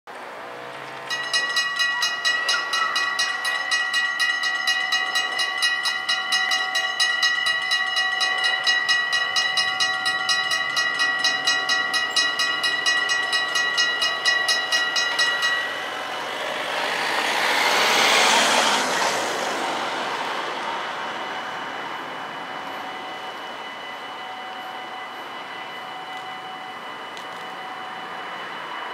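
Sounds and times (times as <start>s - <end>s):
level crossing bells ringing: 0.8s - 18.2s, 21.1s - 28.9s.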